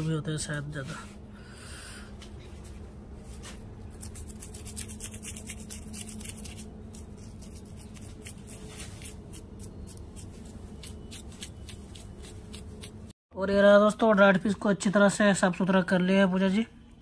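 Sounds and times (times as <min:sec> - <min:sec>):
knife scraping fish scales: 0:03.9 - 0:13.0.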